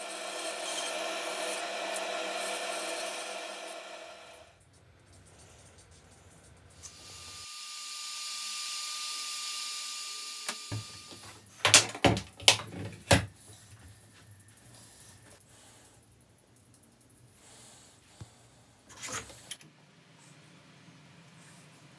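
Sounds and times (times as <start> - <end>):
hiss with thin steady tone: 13.4 - 21.9.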